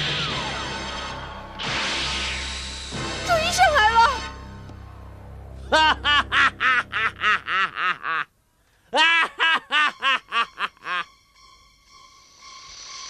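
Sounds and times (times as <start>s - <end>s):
cartoon character laughing: 5.7s - 8.3s, 8.9s - 11.1s.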